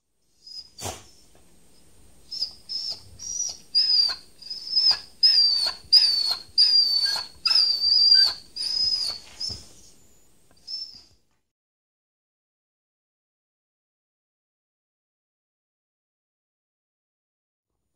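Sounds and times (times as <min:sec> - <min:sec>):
dog whining: 0:00.4 - 0:01.3, 0:02.2 - 0:11.2.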